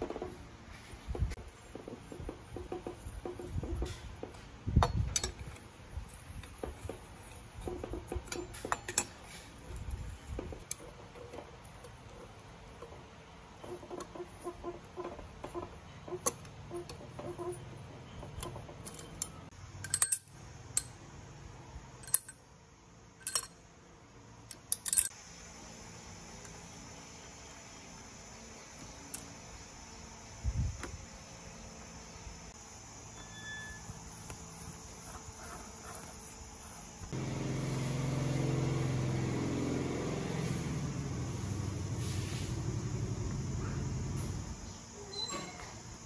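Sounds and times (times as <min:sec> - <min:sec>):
metal tools clinking: 0:04.8 - 0:05.6, 0:08.2 - 0:09.6, 0:18.3 - 0:20.9, 0:23.2 - 0:23.6, 0:24.6 - 0:25.2.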